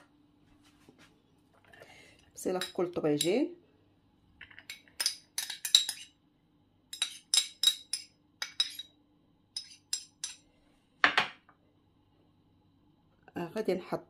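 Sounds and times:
metal utensil clinking on ceramic bowl: 6.9s - 8.9s.

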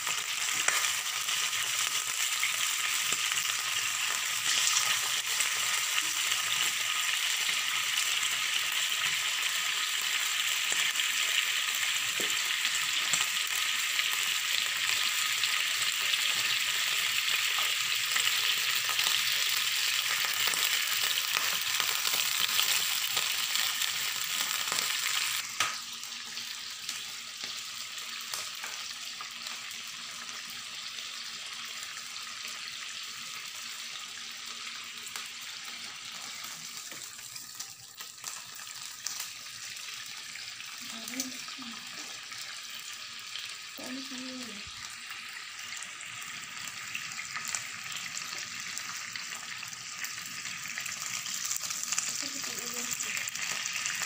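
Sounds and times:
beef sizzling in oil: 0.0s - 54.0s.

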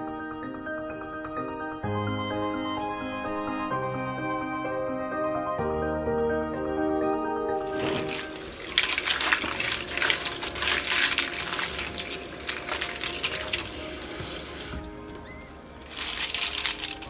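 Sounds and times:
soft background music: 0.0s - 17.0s
tap water splashing into sink: 7.7s - 15.0s.

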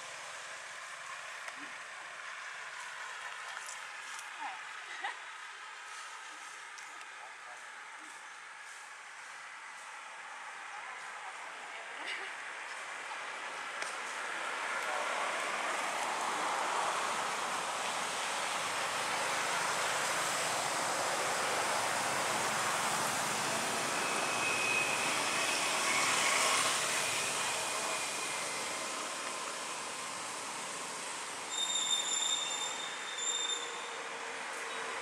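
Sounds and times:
forest ambience hiss: 0.0s - 34.9s
high-pitched squeals: 23.4s - 29.0s, 31.5s - 34.0s.

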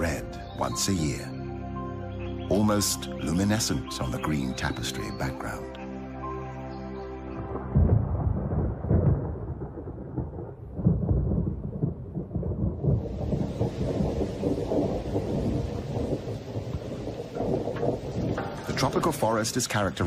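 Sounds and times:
thunder rumbling: 7.4s - 20.0s
heavy rain hissing: 13.0s - 20.0s.

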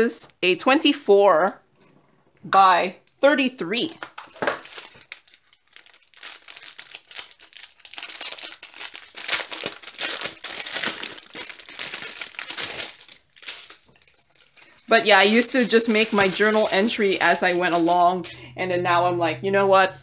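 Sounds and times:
plastic packaging crinkling: 3.9s - 18.3s.

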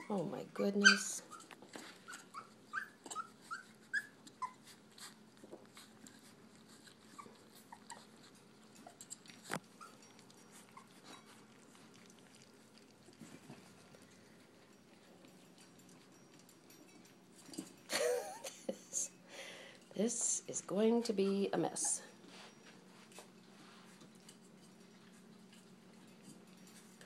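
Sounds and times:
puppies whimpering squeaks: 0.0s - 5.2s, 5.8s - 11.5s, 21.3s - 22.2s.

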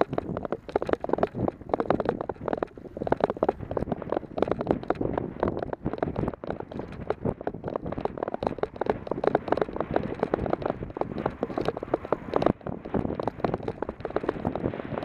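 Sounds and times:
bike tyres crunching over gravel: 0.0s - 15.0s
wind noise on microphone: 0.0s - 15.0s.

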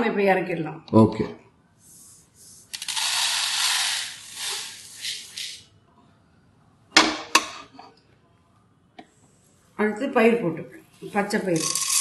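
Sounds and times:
seeds pouring onto plastic plate: 11.6s - 12.0s.

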